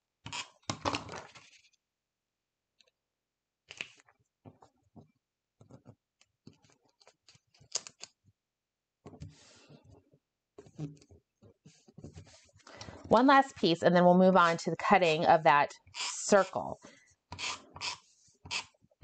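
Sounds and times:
paper rustling: 0.9 - 1.8.

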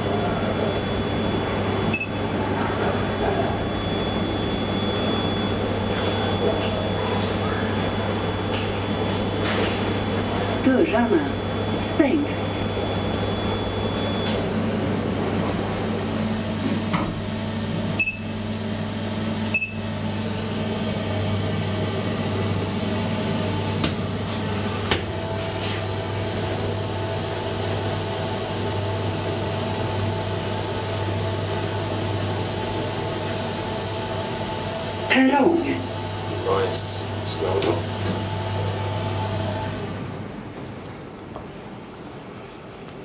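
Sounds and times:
high-pitched whine: 0.0 - 14.6
elevator low hum: 0.0 - 43.0
short beeps: 1.9 - 2.3, 18.0 - 18.4, 19.5 - 19.9.

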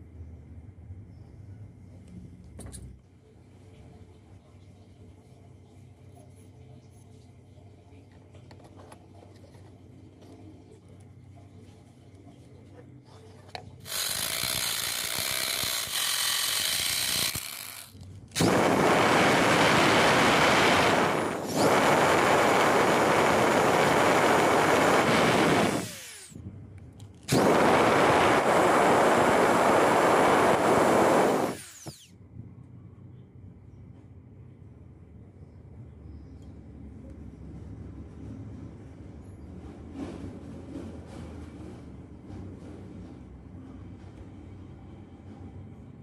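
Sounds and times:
cordless drill boring into metal: 13.8 - 26.3, 27.3 - 32.1.

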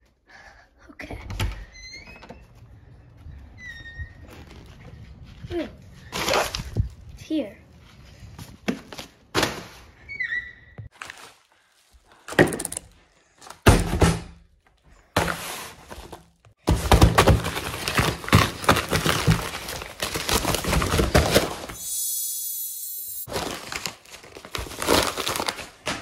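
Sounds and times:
paper envelope crinkling: 10.9 - 12.0, 17.4 - 21.8, 23.3 - 25.9
paper mailer thumps: 16.6 - 19.7.

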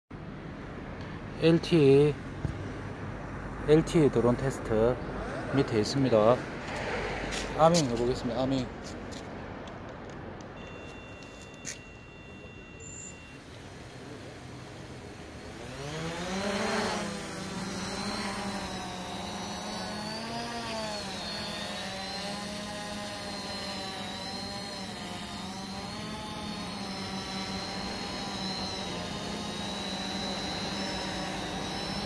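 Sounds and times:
drone propellers whining: 10.6 - 32.0.

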